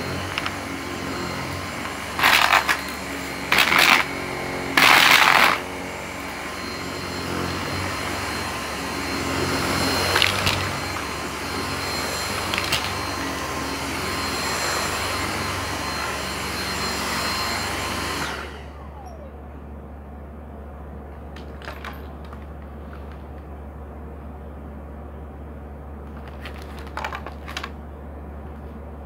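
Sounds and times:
motor winding down: 0:00.0 - 0:19.7
vacuum cleaner whining: 0:00.0 - 0:29.0
low steady hum: 0:18.5 - 0:29.0.

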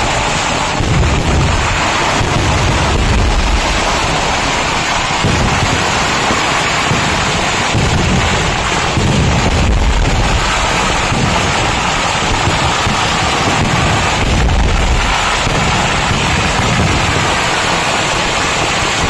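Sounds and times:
fireworks blasts rumbling: 0:00.0 - 0:19.0.

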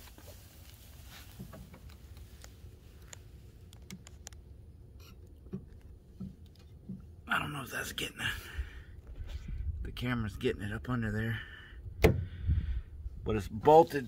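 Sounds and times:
camera handling ticks and rustles: 0:00.0 - 0:04.5
low steady rumble: 0:00.0 - 0:14.0.

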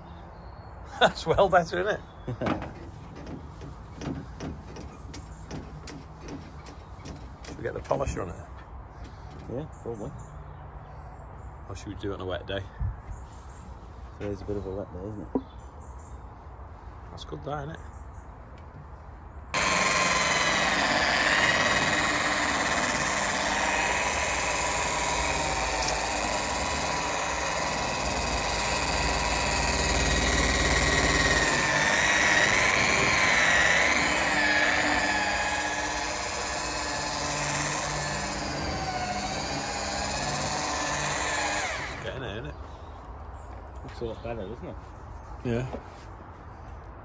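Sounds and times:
electric polisher motor whine: 0:19.6 - 0:42.1.

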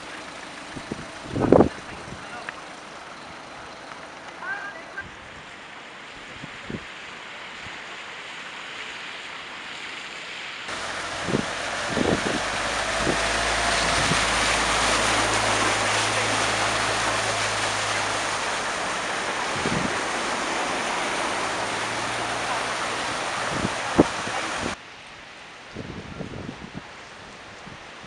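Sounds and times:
van engine hum: 0:00.0 - 0:05.4, 0:10.7 - 0:24.8
van splashing through floodwater: 0:00.0 - 0:28.0.

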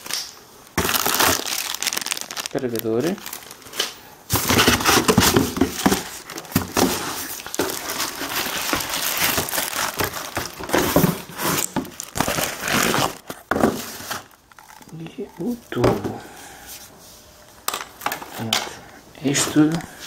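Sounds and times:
plastic packaging crinkling: 0:00.0 - 0:15.6.

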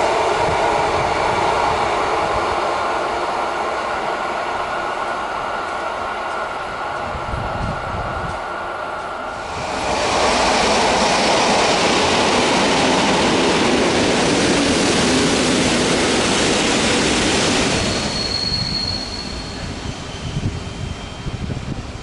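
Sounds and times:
train wheels rumbling on rails: 0:00.0 - 0:22.0
high thin squeal: 0:17.5 - 0:21.6.

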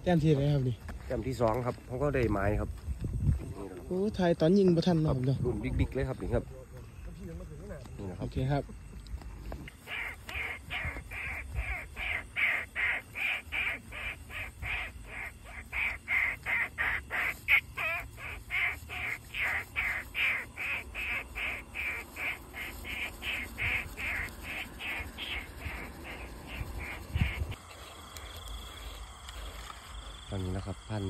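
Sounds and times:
short harsh animal calls: 0:09.8 - 0:27.6.

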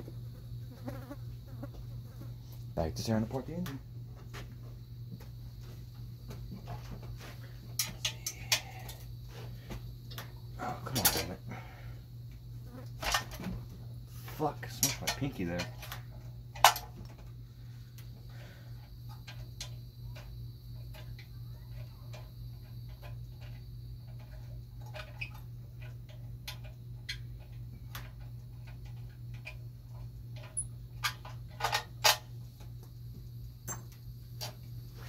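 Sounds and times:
steady low hum: 0:00.0 - 0:35.0
hand tools clicking on metal: 0:07.8 - 0:09.0.

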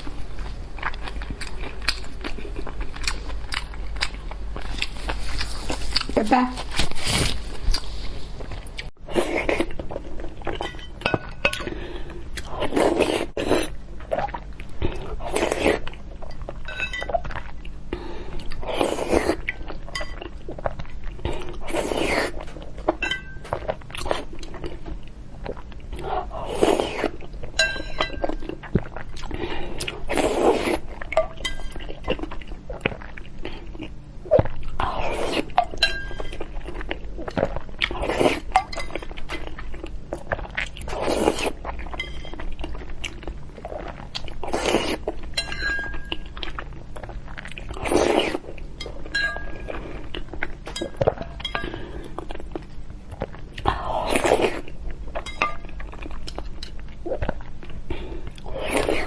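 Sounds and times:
chewing and mouth sounds: 0:00.0 - 0:06.8, 0:07.6 - 0:59.0
utensils clinking against bowl: 0:16.6 - 0:17.2, 0:23.0 - 0:23.6, 0:27.6 - 0:28.4, 0:35.6 - 0:36.4, 0:45.4 - 0:46.3, 0:48.8 - 0:49.8, 0:50.7 - 0:51.9, 0:55.2 - 0:55.7.

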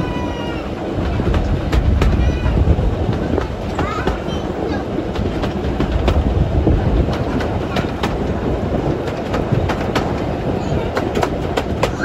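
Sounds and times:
railway carriage rumble: 0:00.0 - 0:12.0
wheels clicking over track: 0:00.0 - 0:12.0.

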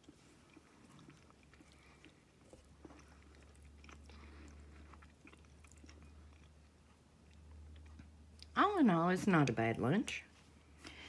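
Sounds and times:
quiet chewing: 0:00.0 - 0:08.6.

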